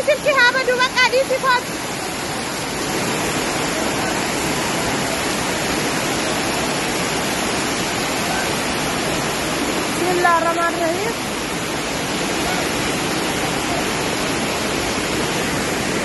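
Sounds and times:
heavy rain pouring: 0.0 - 16.0
running water: 0.0 - 16.0.

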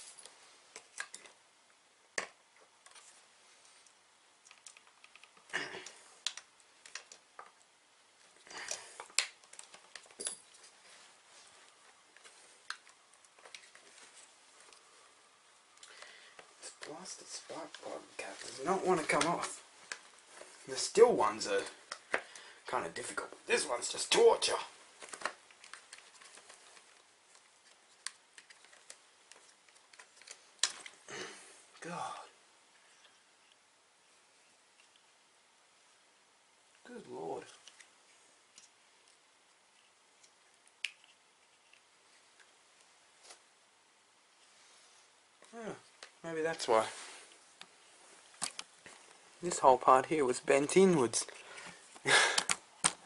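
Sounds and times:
hands rubbing and clicking plug cap: 6.2 - 7.6, 25.0 - 30.9, 39.7 - 42.5.

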